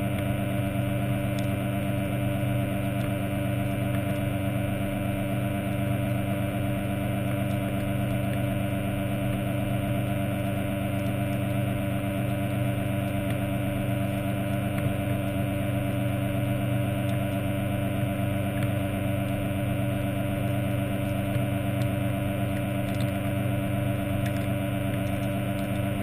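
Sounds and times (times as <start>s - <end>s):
underwater motor humming: 0.0s - 26.0s
faint clicks: 22.5s - 23.3s, 24.2s - 26.0s.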